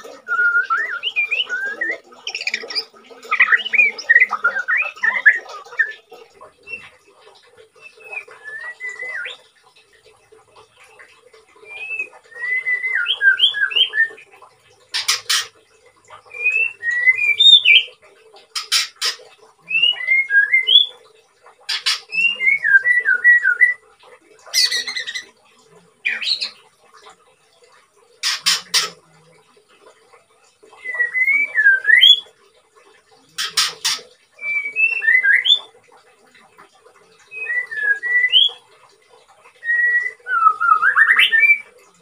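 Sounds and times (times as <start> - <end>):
bird whistling song: 0.1 - 6.0, 7.8 - 9.5, 11.6 - 14.2, 16.3 - 18.0, 18.6 - 21.0, 21.8 - 23.8, 30.8 - 32.3, 33.4 - 35.7, 37.3 - 38.6, 39.6 - 41.7.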